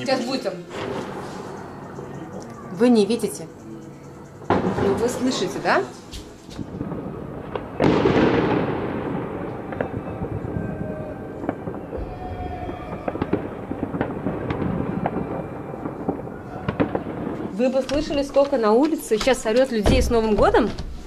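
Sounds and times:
firecrackers cracking and popping: 4.5 - 19.7
firework bang: 6.6 - 18.2.

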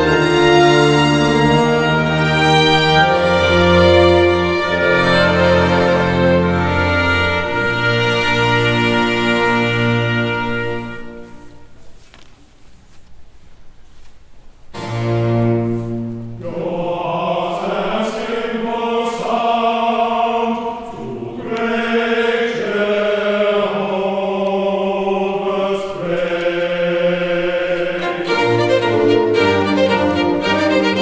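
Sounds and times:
choir singing: 0.0 - 11.5, 16.1 - 31.0
string orchestra playing: 0.0 - 11.5, 14.8 - 16.8, 27.4 - 31.0.

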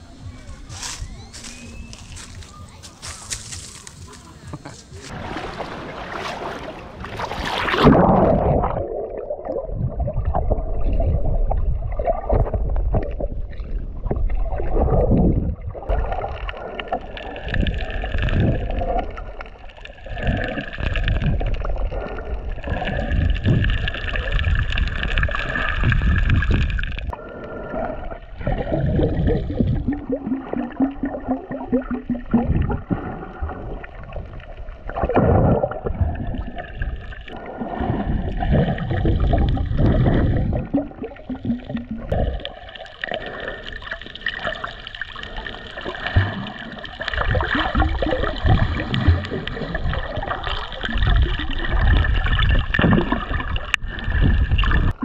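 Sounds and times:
muffled underwater sloshing and bubbling: 4.0 - 55.0
water splash: 5.0 - 11.2, 28.4 - 55.0.

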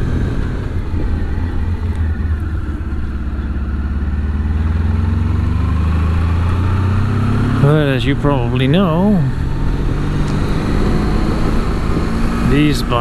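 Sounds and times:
wind rush on microphone: 0.0 - 3.4, 9.4 - 13.0
motorcycle engine running: 0.0 - 13.0.

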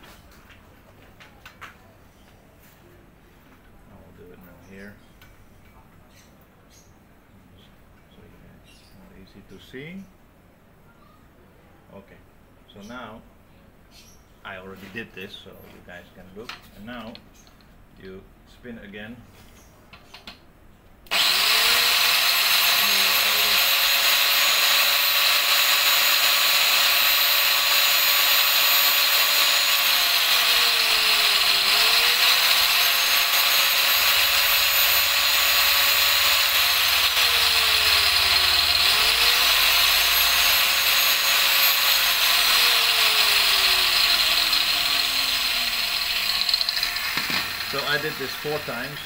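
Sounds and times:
angle grinder motor whine: 21.1 - 49.0.

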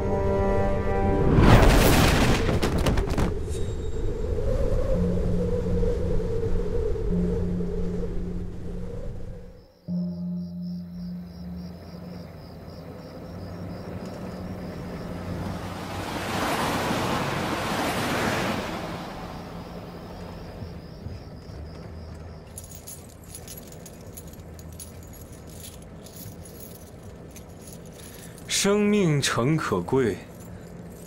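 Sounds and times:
truck engine humming: 6.8 - 31.0
handcuff chains rattling: 21.8 - 28.8, 29.9 - 31.0.

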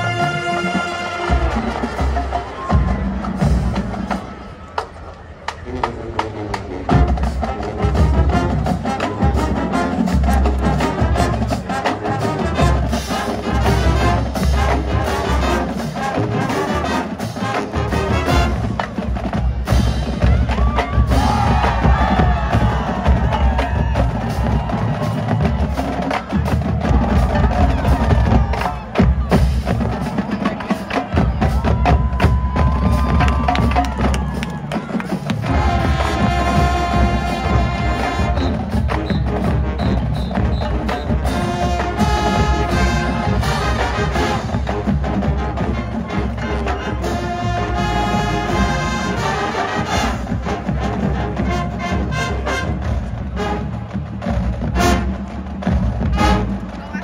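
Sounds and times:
marching band playing: 0.0 - 57.0.

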